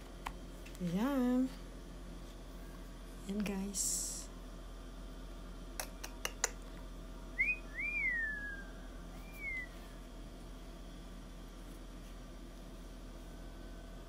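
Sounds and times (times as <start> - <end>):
whistled notes: 7.4 - 9.9.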